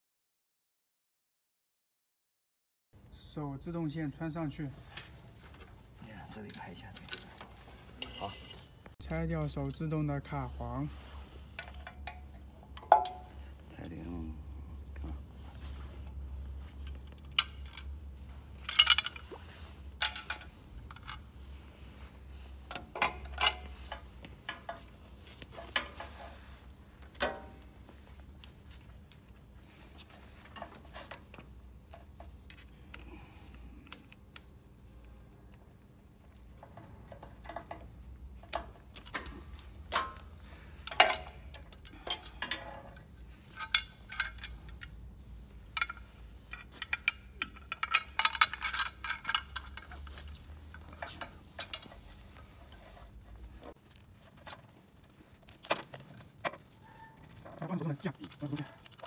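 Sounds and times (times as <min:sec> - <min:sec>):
low steady hum: 0:03.0 - 0:57.6
metallic clicks of pliers and cable: 0:38.4 - 0:45.0.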